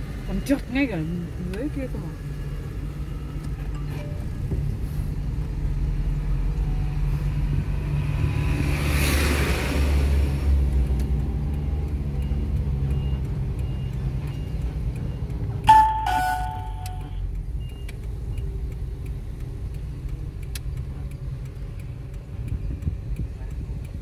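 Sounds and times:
faint regular ticking: 10.7s - 24.0s
two-note electronic chime: 15.7s - 17.2s.

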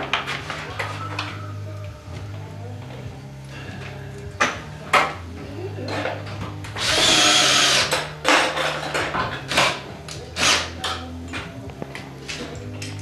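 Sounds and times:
cordless drill on steel: 6.8s - 8.0s, 10.4s - 10.7s.

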